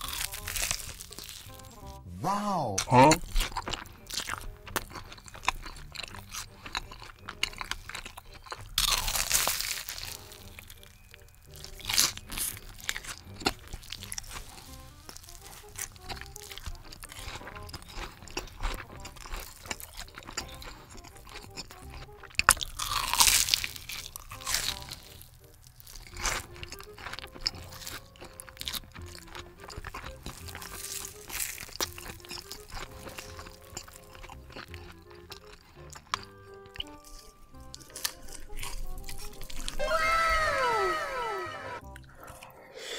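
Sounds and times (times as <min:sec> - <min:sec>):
crisp bites: 0:00.0 - 0:02.0, 0:02.8 - 0:42.1
crunchy chewing: 0:00.0 - 0:02.0, 0:02.8 - 0:42.6.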